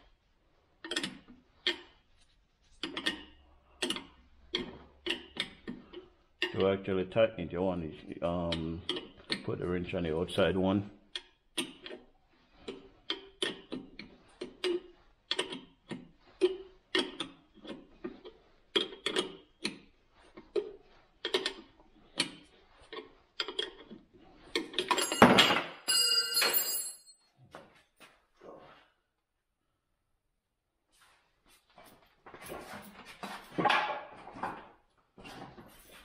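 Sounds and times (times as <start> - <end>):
wrench clattering on wooden bench: 24.7 - 27.1.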